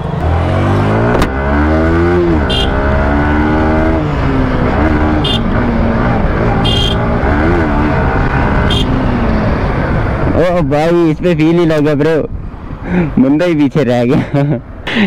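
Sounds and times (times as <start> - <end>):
motorcycle engine revving: 0.0 - 10.4.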